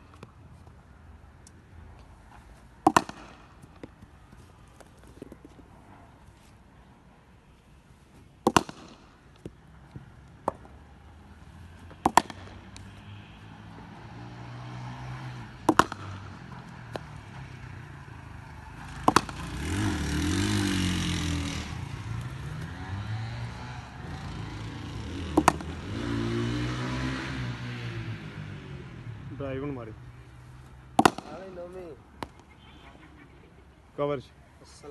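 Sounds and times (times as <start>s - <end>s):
cricket bat striking ball: 2.8s - 4.0s, 8.4s - 9.6s, 10.4s - 10.8s, 11.9s - 12.8s, 15.6s - 17.2s, 19.0s - 19.6s, 25.3s - 25.8s, 30.9s - 31.5s, 32.2s - 32.5s.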